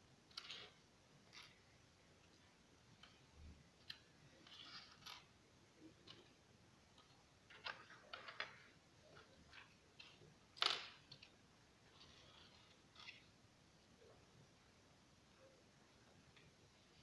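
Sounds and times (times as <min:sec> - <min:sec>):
plastic bricks clicking and snapping: 0:06.9 - 0:11.4.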